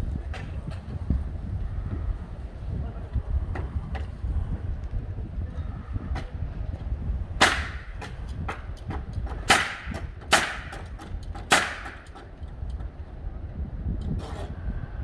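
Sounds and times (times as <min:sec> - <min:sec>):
nail gun shots: 0:07.4 - 0:08.6, 0:09.3 - 0:12.2.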